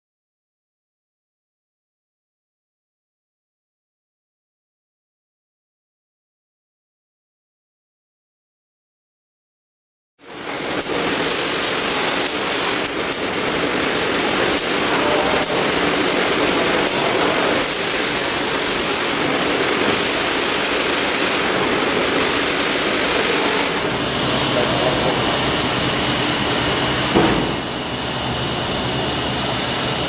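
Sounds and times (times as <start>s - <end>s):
thin high whine: 10.3s - 30.0s
machine mechanical din: 10.6s - 30.0s.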